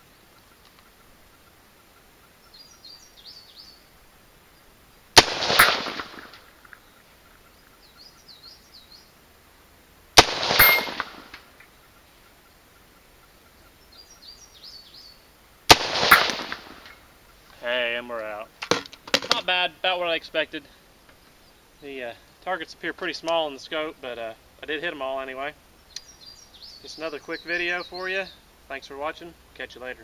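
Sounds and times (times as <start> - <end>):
rifle shots with echo: 5.2 - 6.3, 10.2 - 11.4, 15.7 - 16.9.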